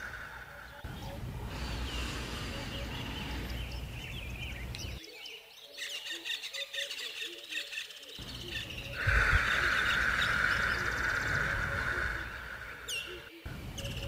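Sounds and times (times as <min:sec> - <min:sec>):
steady hiss-like drone: 0:00.0 - 0:05.0, 0:08.2 - 0:14.0
birds chirping and calling: 0:00.0 - 0:14.0.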